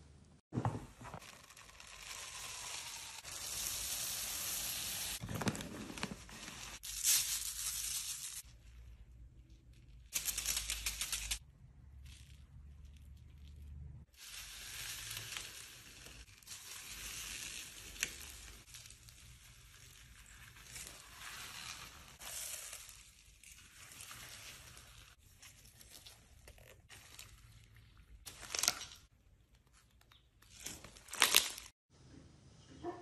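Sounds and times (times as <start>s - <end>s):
slime beads crackling and crunching: 1.2s - 5.2s, 14.2s - 29.1s, 30.1s - 31.7s.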